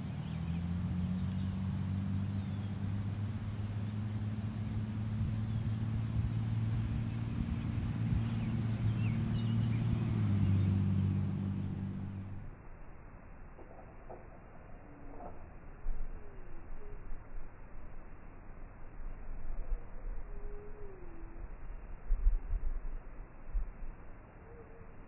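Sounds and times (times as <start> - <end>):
low motor hum: 0.0 - 24.7
faint bird chirps: 16.1 - 17.2, 19.5 - 21.4, 24.4 - 25.0.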